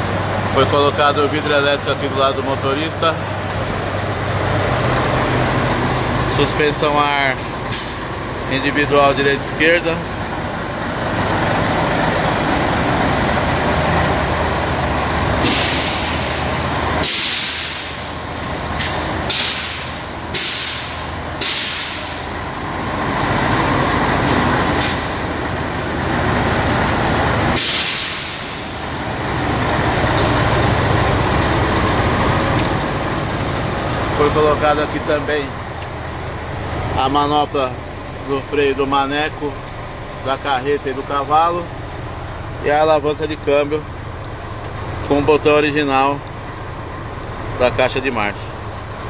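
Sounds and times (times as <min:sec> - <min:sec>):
diesel engine running: 0:00.0 - 0:49.0
air suspension hissing: 0:07.4 - 0:08.2, 0:15.4 - 0:22.4, 0:24.2 - 0:25.4, 0:27.5 - 0:29.0.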